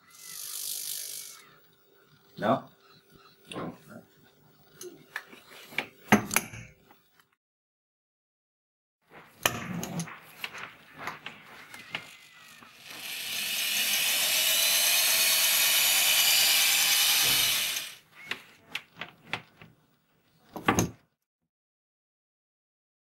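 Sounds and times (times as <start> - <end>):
electric drill whine: 11.6 - 18.0.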